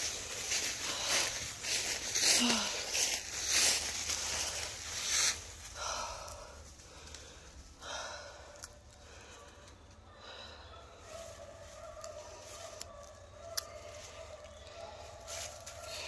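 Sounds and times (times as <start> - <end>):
footsteps crunching dry leaves: 0.0 - 7.4, 11.1 - 16.0.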